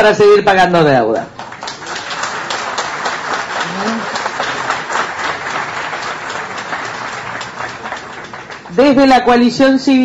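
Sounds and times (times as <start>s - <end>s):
audience applauding: 1.3s - 9.1s
voice from crowd: 1.7s - 9.2s.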